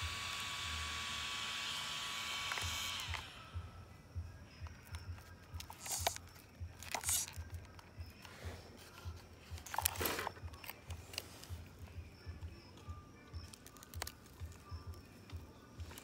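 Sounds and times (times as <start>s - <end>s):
handling clicks and rustles: 4.6s - 16.0s.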